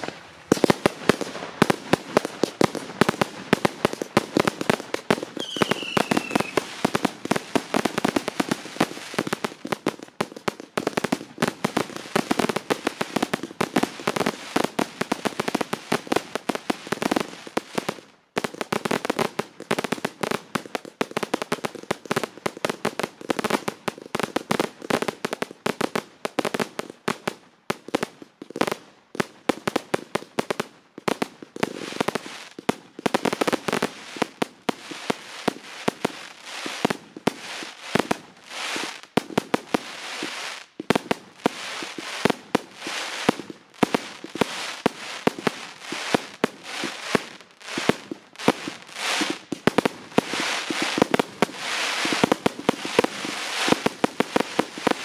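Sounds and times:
fireworks crackling and banging: 0.0s - 55.0s
falling firework whistle: 5.4s - 6.7s.

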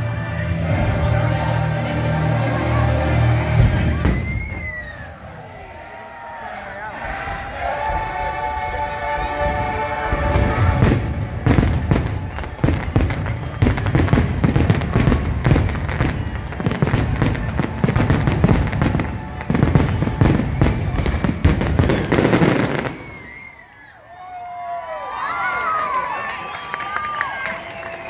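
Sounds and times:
show music: 0.0s - 23.0s
fireworks booming and crackling: 3.5s - 5.2s, 9.4s - 23.6s.

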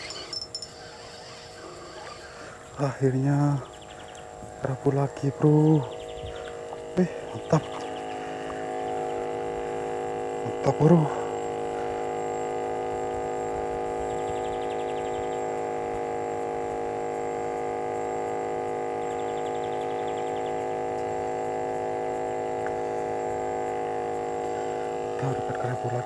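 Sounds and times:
faint high trill: 0.0s - 2.4s
steady hum of held tones: 0.0s - 26.0s.

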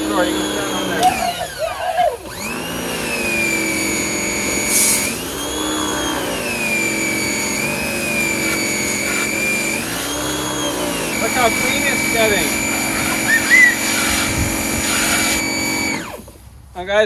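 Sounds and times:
pressure washer motor whine: 0.0s - 16.4s
water spraying from wand: 3.8s - 15.9s.

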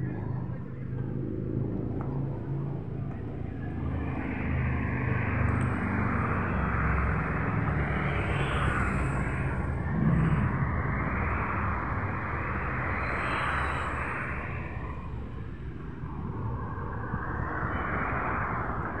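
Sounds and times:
low engine rumble: 9.1s - 12.9s.

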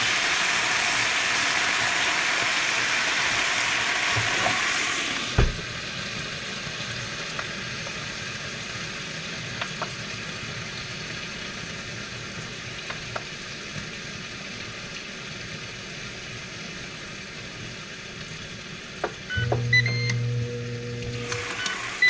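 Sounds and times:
grill sizzling: 0.0s - 22.0s
fan humming: 19.0s - 22.0s
short high beeps: 19.3s - 20.3s.

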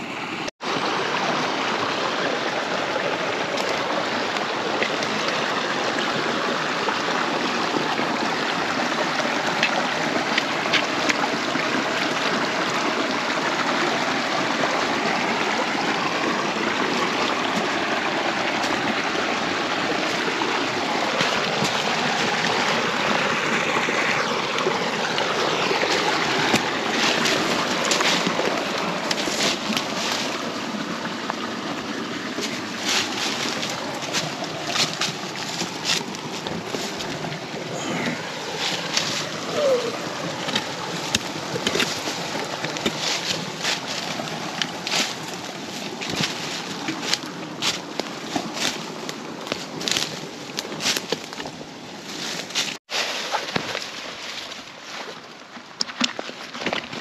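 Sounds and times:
creek water running: 0.0s - 57.0s.

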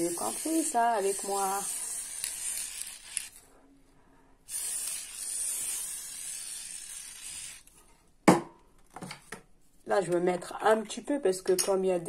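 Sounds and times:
aerosol spray hissing: 0.0s - 3.3s, 4.5s - 7.6s.

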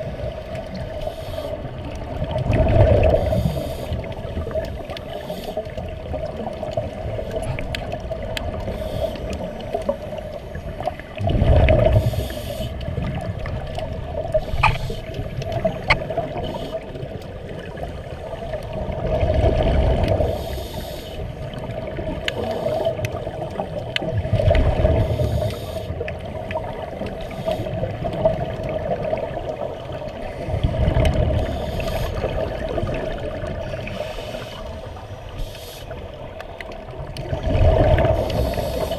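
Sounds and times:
steady underwater hum: 0.0s - 38.9s
underwater exhalation bubbles: 2.2s - 3.4s, 11.2s - 12.1s, 37.2s - 38.6s.

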